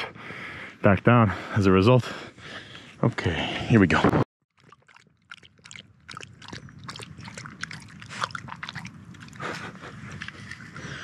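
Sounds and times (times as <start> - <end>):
dog lapping water: 4.5 - 9.5.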